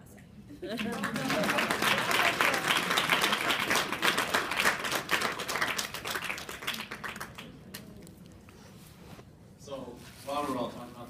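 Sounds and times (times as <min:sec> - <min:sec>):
audience applauding: 0:00.8 - 0:07.8.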